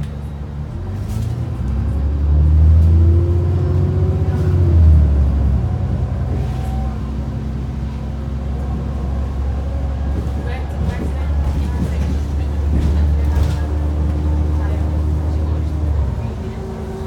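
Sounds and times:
bus engine pulling away: 0:00.0 - 0:17.0.

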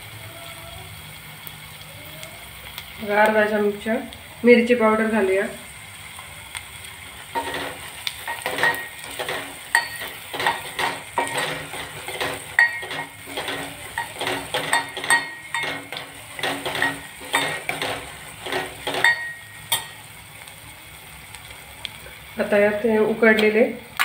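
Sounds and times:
masala sizzling: 0:00.0 - 0:24.0
spoon scraping steel pot: 0:07.4 - 0:20.0.

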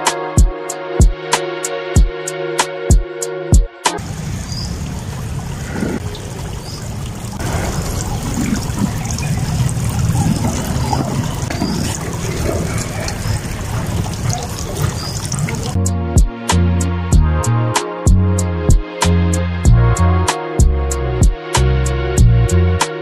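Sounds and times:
music with a beat: 0:00.0 - 0:04.0, 0:15.8 - 0:23.0
fountain water splashing: 0:04.0 - 0:15.8.

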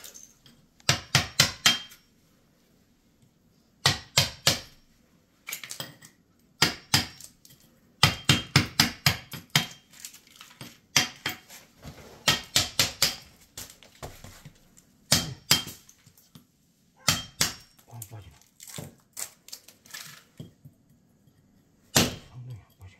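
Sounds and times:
hammer striking chisel: 0:00.8 - 0:02.0, 0:03.8 - 0:04.8, 0:06.6 - 0:07.3, 0:08.0 - 0:09.8, 0:12.2 - 0:13.3, 0:15.1 - 0:15.8, 0:17.0 - 0:17.8, 0:21.9 - 0:22.3.

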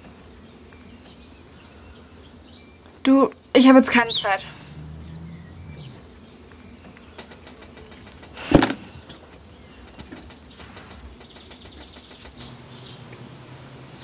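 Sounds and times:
low hum: 0:04.2 - 0:06.3
short thump: 0:08.4 - 0:09.0.

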